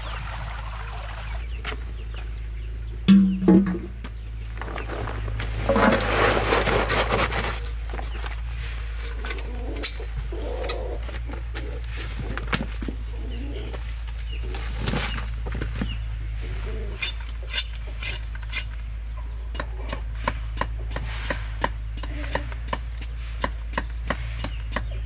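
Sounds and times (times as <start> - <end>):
machete chopping on wooden block: 3.1 - 3.9, 19.5 - 25.0.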